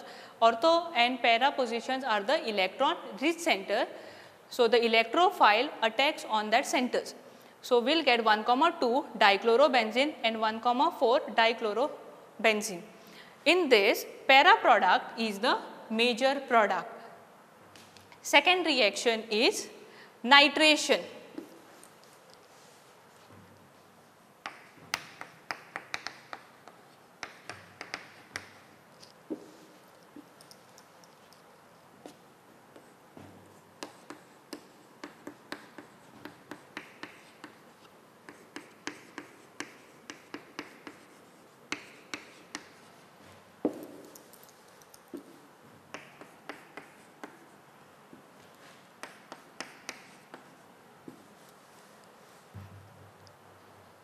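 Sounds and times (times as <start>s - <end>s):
chalk tapping and scratching: 24.4s - 47.7s, 48.4s - 52.5s.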